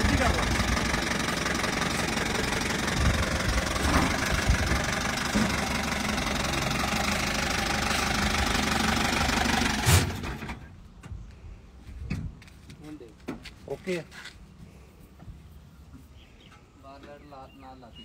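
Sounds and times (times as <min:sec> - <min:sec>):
jeep engine running: 0:00.0 - 0:11.0
loud thump: 0:03.8 - 0:05.8, 0:09.8 - 0:10.6.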